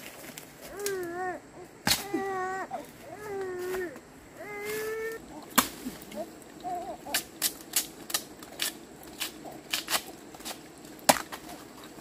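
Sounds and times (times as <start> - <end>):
machete chopping bamboo: 1.8 - 2.2, 5.5 - 6.2, 7.1 - 11.6.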